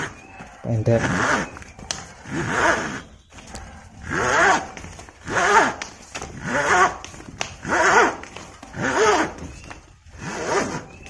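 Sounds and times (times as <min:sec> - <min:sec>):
strap pulled through ratchet buckle: 0:01.0 - 0:01.5, 0:02.2 - 0:03.1, 0:04.0 - 0:07.0, 0:07.6 - 0:09.4.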